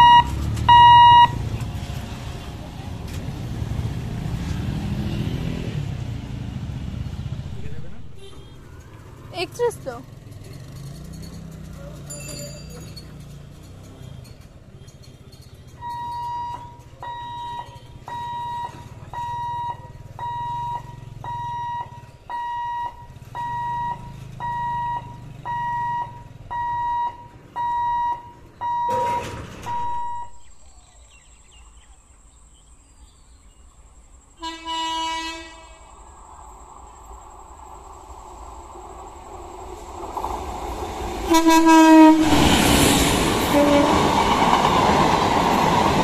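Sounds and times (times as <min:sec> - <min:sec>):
level-crossing alarm beeping: 0:00.0 - 0:01.4, 0:15.8 - 0:30.5
low rumble of road traffic: 0:00.0 - 0:46.0.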